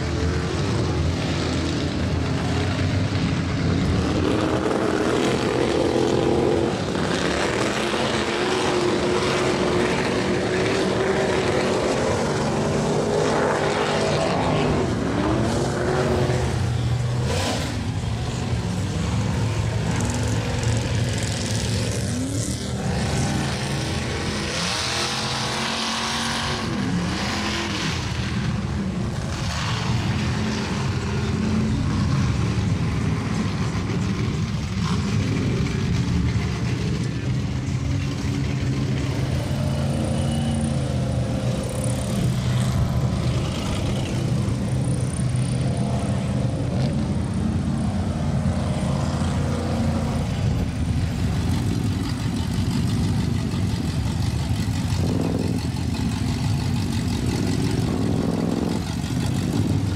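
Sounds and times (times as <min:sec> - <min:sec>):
truck engines revving: 0:00.0 - 0:59.9.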